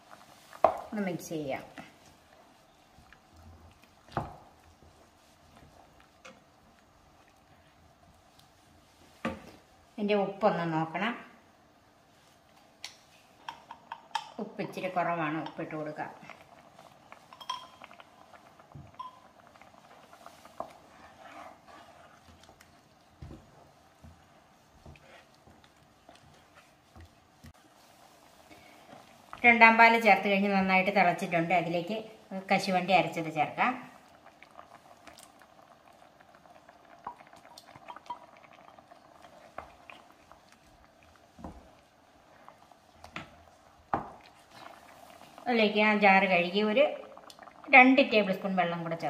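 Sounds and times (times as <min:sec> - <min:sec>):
wooden spatula stirring: 0:00.0 - 0:09.7, 0:15.0 - 0:31.0, 0:37.0 - 0:46.2
stew boiling faintly: 0:00.0 - 0:49.0
spatula stirring stew in a pan: 0:19.9 - 0:29.0.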